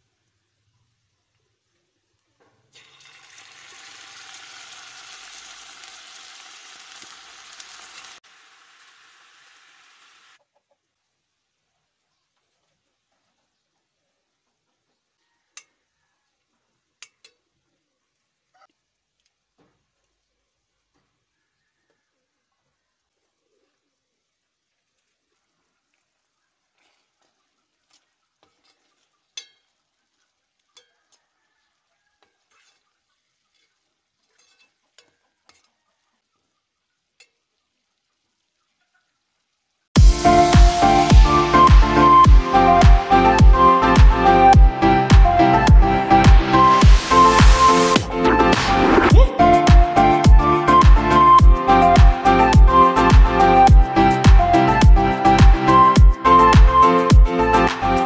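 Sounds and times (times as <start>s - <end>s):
food sizzling in a pan: 2.7s - 10.4s, 24.3s - 42.1s, 46.7s - 48.0s
metal spoon clinking in pan: 28.4s - 29.8s, 32.4s - 32.9s, 33.5s - 35.7s.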